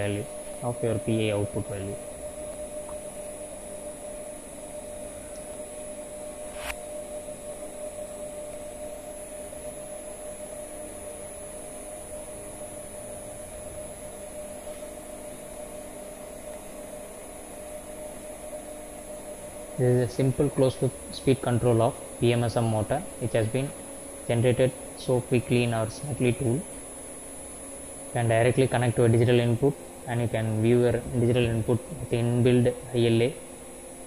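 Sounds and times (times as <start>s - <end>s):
electric motor hum and whine: 0.0s - 34.0s
sharp click: 6.5s - 6.8s.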